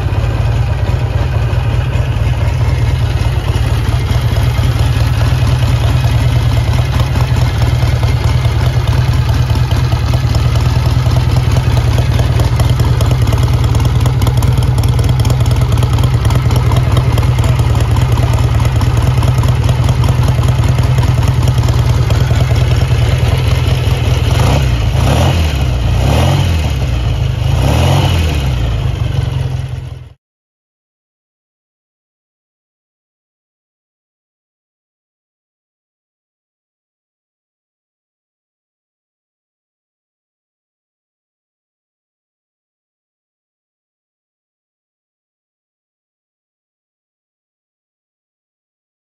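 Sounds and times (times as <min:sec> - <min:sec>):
engine throttle blips: 0:00.0 - 0:30.0
motorcycle engine idling: 0:00.0 - 0:30.2.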